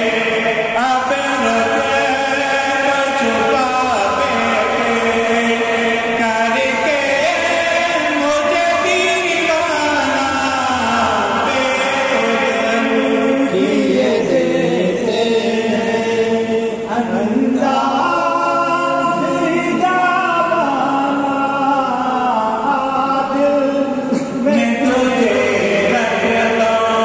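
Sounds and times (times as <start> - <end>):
person singing devotional song: 0.0 - 27.0.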